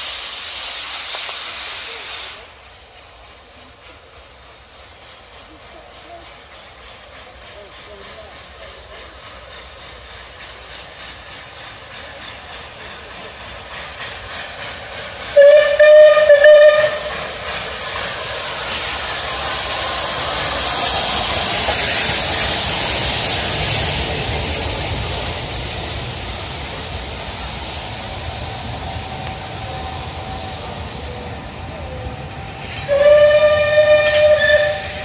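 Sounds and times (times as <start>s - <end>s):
long rushing hiss: 0.0s - 35.0s.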